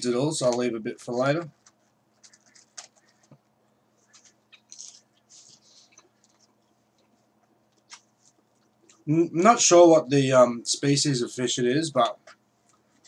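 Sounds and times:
fried food crackling: 4.0 - 7.2
person chewing: 4.0 - 9.1.

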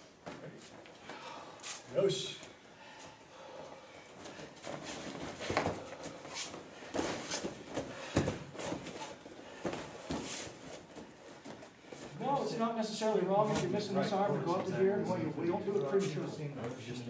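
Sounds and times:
bare feet on mats: 0.0 - 12.2.

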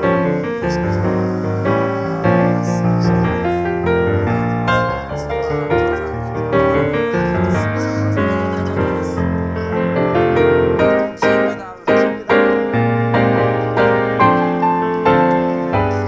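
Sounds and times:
piano background music: 0.0 - 16.0.

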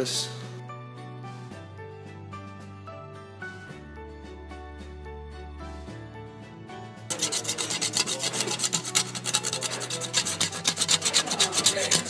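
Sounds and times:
soft background music: 0.0 - 12.0
metal scraper scraping paint: 7.1 - 12.0.

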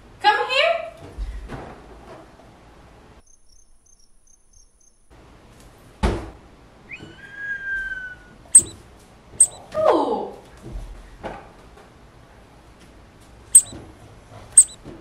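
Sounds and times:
faint cricket chirps: 3.2 - 5.1, 9.4 - 9.6, 14.6 - 14.8
sharp high clicks: 8.6 - 8.8, 9.4 - 9.6, 14.6 - 14.8
whistle-like tone: 9.4 - 9.6, 14.6 - 14.8.

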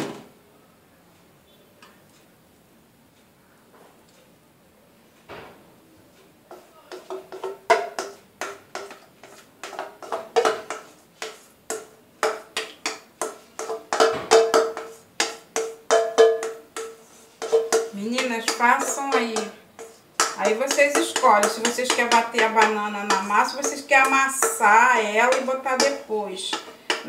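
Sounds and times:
spatula knocking on metal bowl: 6.5 - 27.0.

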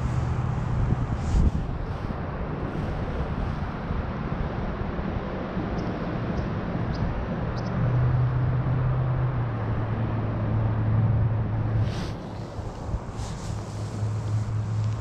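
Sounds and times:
river water rushing: 8.6 - 15.0.

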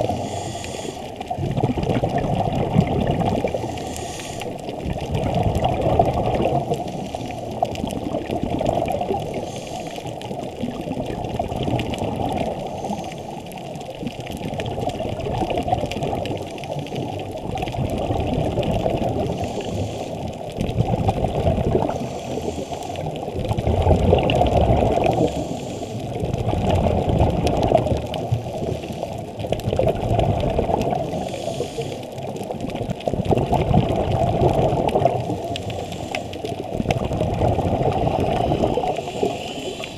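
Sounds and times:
inhalation hiss: 0.0 - 1.2, 3.4 - 4.6, 9.4 - 10.1, 12.7 - 13.4, 19.3 - 20.3, 21.8 - 23.1, 25.2 - 26.1, 31.1 - 32.1, 35.5 - 36.5, 38.2 - 39.9
regulator breathing underwater: 0.0 - 1.4, 3.3 - 5.4, 6.5 - 8.0, 9.2 - 10.4, 12.4 - 13.6, 18.8 - 20.5, 21.6 - 23.3, 24.6 - 26.3, 31.0 - 32.5, 34.9 - 39.9
bubbles gurgling: 0.0 - 39.9.

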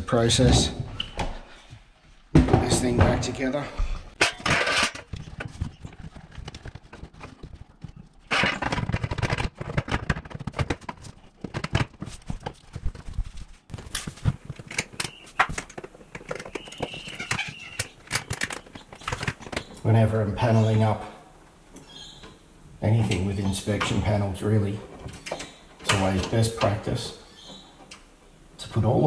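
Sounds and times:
sheet metal scraping and clatter: 4.2 - 7.6.

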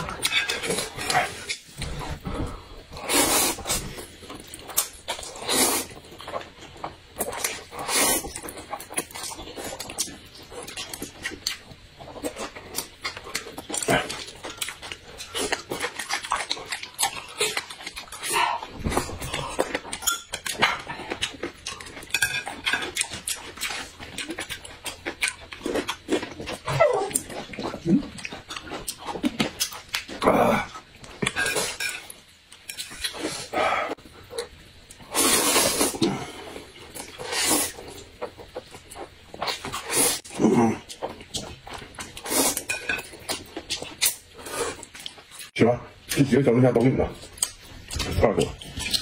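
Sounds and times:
chewing and slurping noodles: 3.0 - 32.1.

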